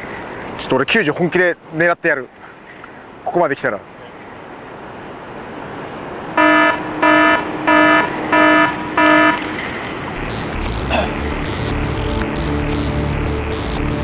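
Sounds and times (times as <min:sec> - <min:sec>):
rising swell of noise: 0:06.0 - 0:14.0
short electronic buzzes: 0:06.4 - 0:14.0.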